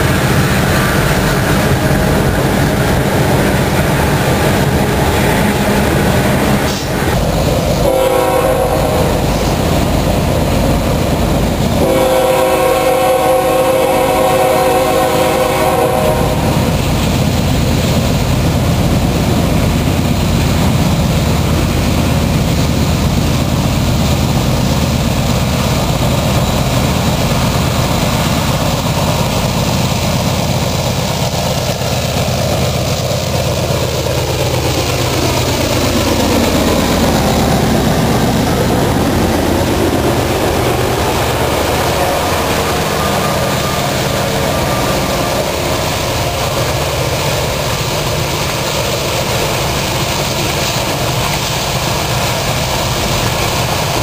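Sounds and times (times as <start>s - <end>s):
low rumble of locomotive engines: 0.0s - 54.0s
train cars clattering: 0.0s - 54.0s
locomotive air horn: 4.6s - 9.6s, 11.7s - 16.8s, 40.1s - 47.3s.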